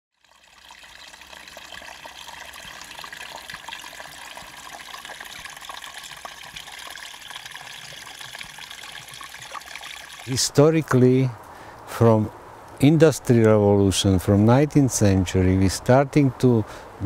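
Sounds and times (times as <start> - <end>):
stream trickling: 0.1 - 11.8.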